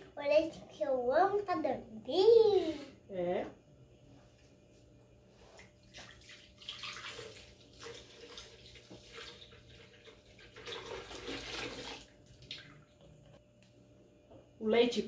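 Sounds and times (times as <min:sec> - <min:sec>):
milk pouring into blender jar: 0:06.5 - 0:12.5.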